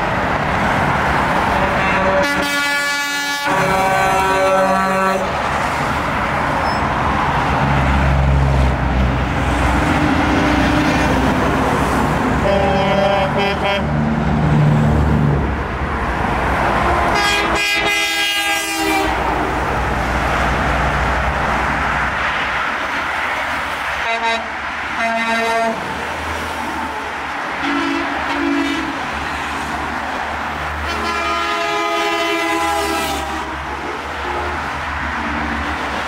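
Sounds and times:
traffic rumble of engines and tyres: 0.0s - 36.0s
vehicle horns honking: 1.5s - 5.3s, 12.4s - 14.0s, 17.1s - 19.3s, 24.0s - 25.9s, 27.6s - 29.0s, 30.8s - 34.6s.

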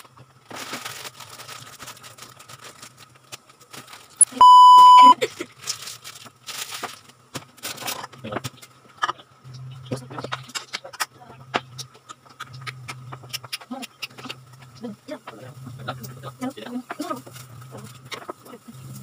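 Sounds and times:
faint low hum: 3.7s - 5.5s
high test-tone beep: 4.4s - 5.1s.

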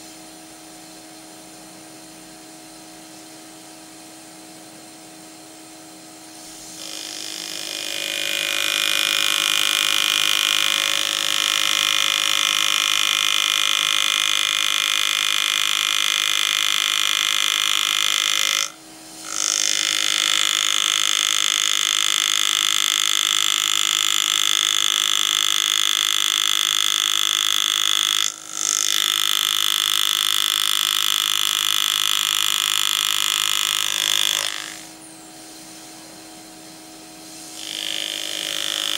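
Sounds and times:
engraving handpiece buzzing: 6.4s - 38.9s.

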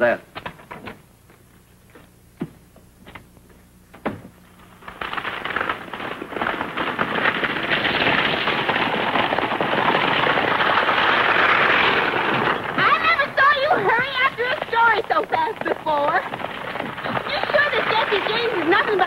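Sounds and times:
buggy wheels rattling: 4.9s - 19.0s
hooves clattering on dirt road: 5.0s - 19.0s.

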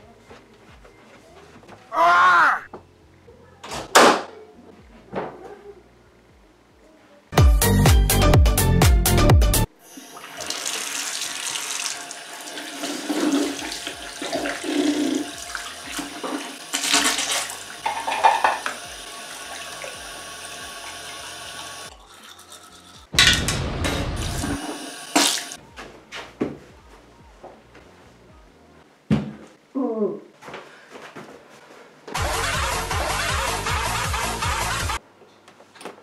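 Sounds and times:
tap water running into basin: 9.9s - 23.1s, 24.4s - 25.6s
water splashing: 10.1s - 21.1s
loud music bursts: 23.1s - 24.7s, 32.2s - 35.0s.

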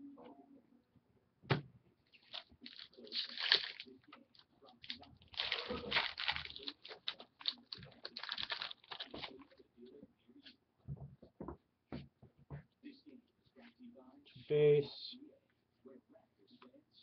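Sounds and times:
card pack wrapper crinkling and tearing: 2.2s - 4.0s, 4.8s - 9.5s.

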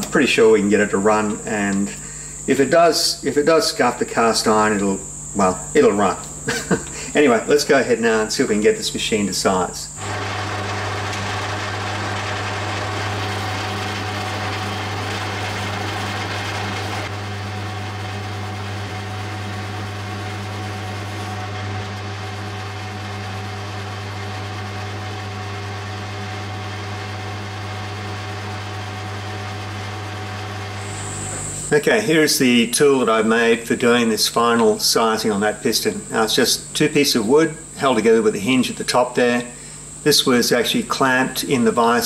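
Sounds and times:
metal lathe humming: 4.4s - 34.8s
cutter hissing on metal: 30.6s - 31.8s.

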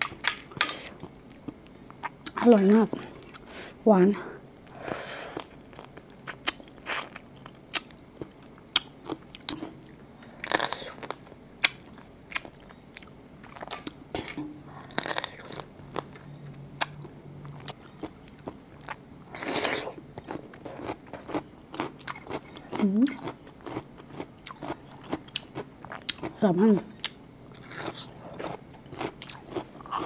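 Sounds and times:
crunchy biting and chewing: 17.6s - 26.3s, 27.0s - 30.0s.

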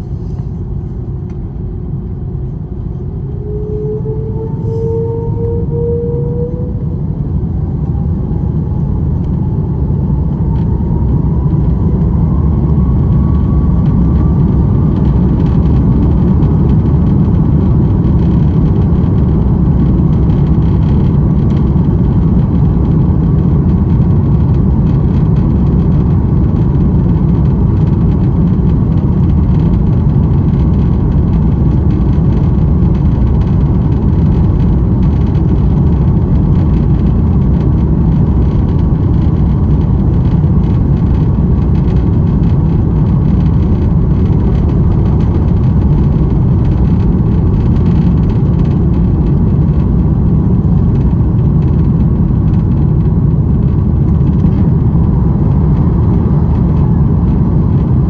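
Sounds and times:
jet engines spooling up: 0.0s - 15.8s.

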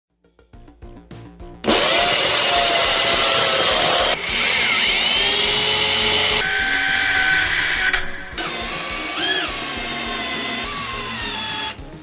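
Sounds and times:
power drill boring into concrete: 1.6s - 7.0s, 7.8s - 11.8s.

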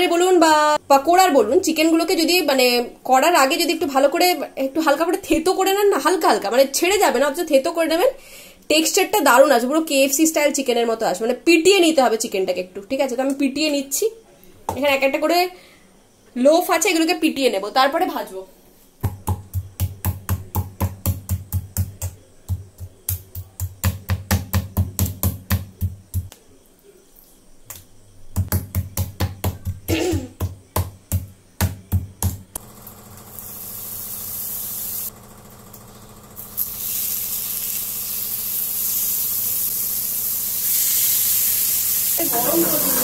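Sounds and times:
meat pounded on wooden board: 19.0s - 26.3s, 28.4s - 32.5s
chicken sizzling on grill pan: 33.2s - 35.1s, 36.4s - 43.0s.

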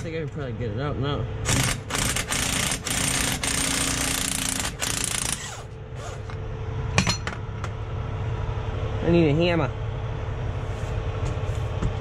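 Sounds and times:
air impact wrench rattling: 1.5s - 6.4s.

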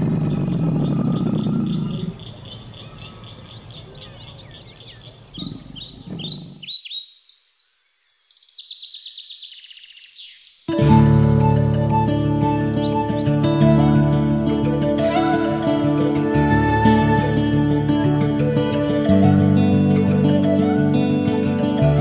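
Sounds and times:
birds chirping: 0.0s - 11.7s, 12.4s - 13.6s.

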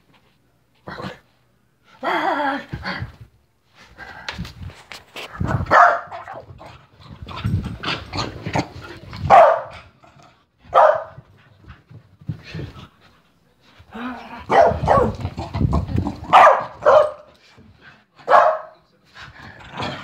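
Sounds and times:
dog barking: 5.7s - 6.2s, 9.3s - 9.7s, 10.7s - 11.2s, 14.5s - 15.2s, 16.3s - 17.3s, 18.2s - 18.8s.

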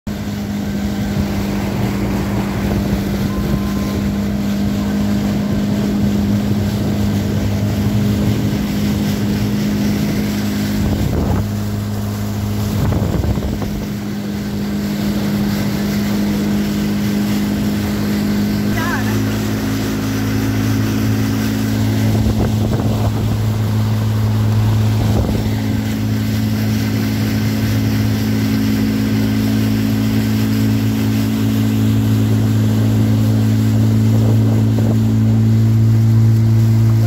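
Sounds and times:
wind on microphone: 0.1s - 18.6s, 19.7s - 37.0s
motorboat engine humming: 0.1s - 37.0s.

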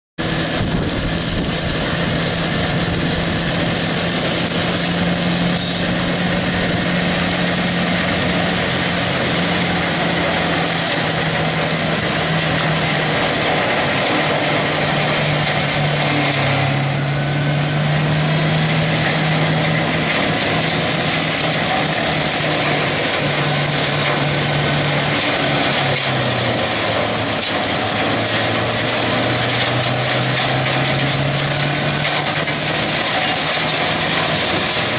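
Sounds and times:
diesel engine under load: 0.2s - 34.9s
mower cutting tall grass: 0.2s - 34.9s.

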